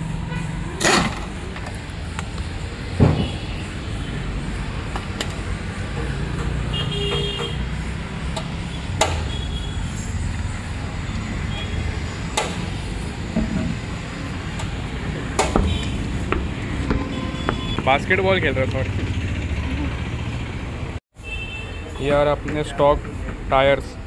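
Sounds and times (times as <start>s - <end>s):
street traffic rumble: 0.0s - 24.0s
sharp knocks: 2.9s - 3.5s, 8.4s - 9.3s, 15.3s - 17.9s
car horn toot: 6.7s - 7.7s, 8.7s - 9.9s, 11.5s - 12.0s, 15.5s - 16.1s, 16.9s - 18.0s, 21.2s - 22.0s.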